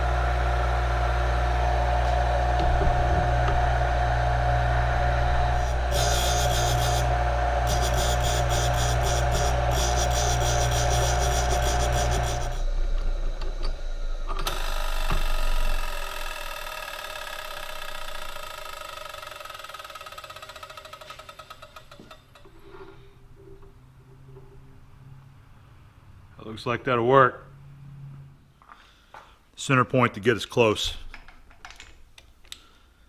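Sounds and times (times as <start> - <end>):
bench grinder grinding drill bit: 0.0 - 13.7, 14.3 - 22.0
grinder wheel running down: 0.0 - 22.2.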